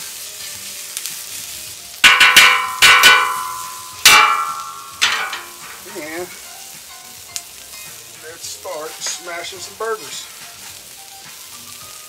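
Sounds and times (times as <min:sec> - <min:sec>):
onions sizzling: 0:00.0 - 0:12.0
metal spatula clanging on griddle: 0:02.0 - 0:06.5.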